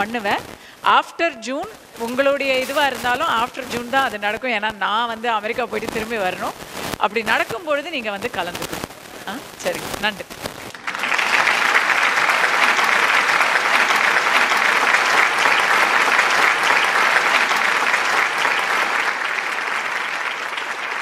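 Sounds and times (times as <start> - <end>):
audience clapping: 10.6 - 21.0.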